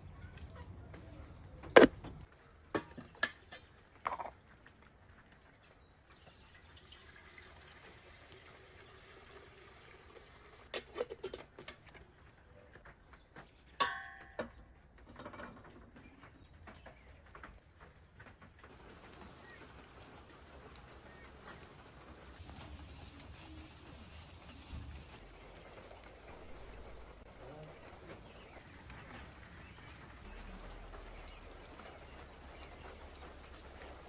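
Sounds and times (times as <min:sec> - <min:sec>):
water running into metal kettle: 0:06.2 - 0:10.8.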